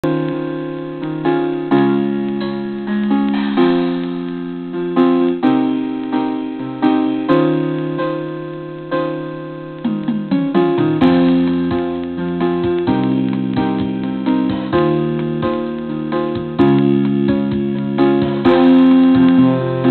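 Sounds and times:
slow struck chords: 0:09.7 - 0:19.9.

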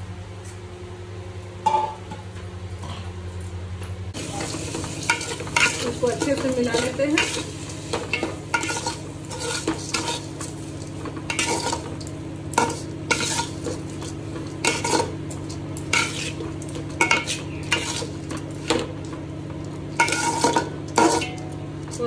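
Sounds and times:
light sizzle: 0:04.1 - 0:22.0
spoon scraping a cooking pot: 0:08.1 - 0:10.5, 0:12.6 - 0:18.8, 0:20.0 - 0:21.4.

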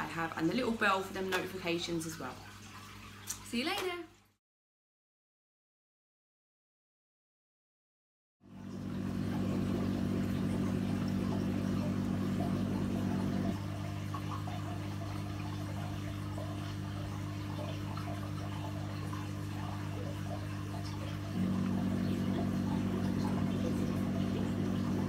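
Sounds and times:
water moving in tank: 0:00.0 - 0:04.2, 0:08.4 - 0:25.0
aquarium equipment humming: 0:08.4 - 0:25.0.

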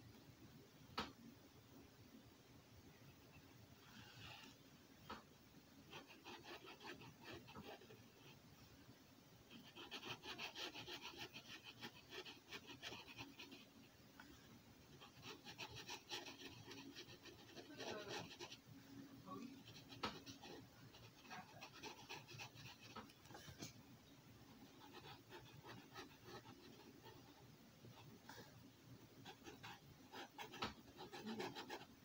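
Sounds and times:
marker scratching on paper: 0:05.9 - 0:08.0, 0:09.5 - 0:13.7, 0:15.0 - 0:18.6, 0:19.6 - 0:23.4, 0:24.7 - 0:27.4, 0:29.2 - 0:31.9.

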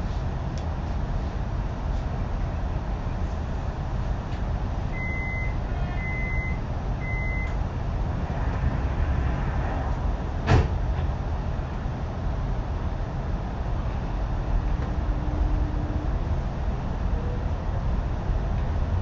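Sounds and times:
train low rumble: 0:00.0 - 0:19.0
door-closing warning beeps: 0:05.0 - 0:07.6
sliding doors thudding shut: 0:10.4 - 0:11.1.

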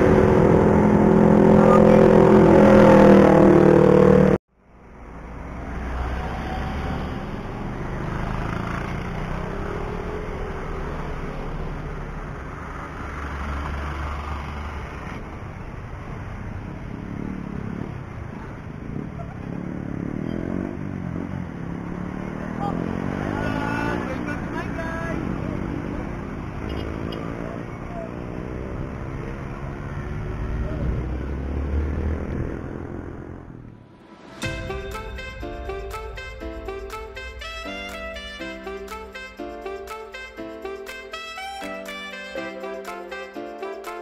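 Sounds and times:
vehicle engine running: 0:00.0 - 0:04.4
distant traffic: 0:00.0 - 0:44.0
wind: 0:00.0 - 0:44.0
low rumble: 0:33.4 - 0:38.9.

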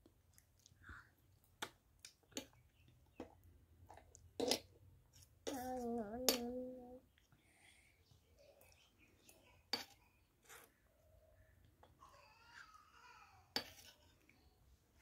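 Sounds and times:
toddler eating clicks and smacks: 0:00.0 - 0:07.4
person humming: 0:05.5 - 0:07.0.

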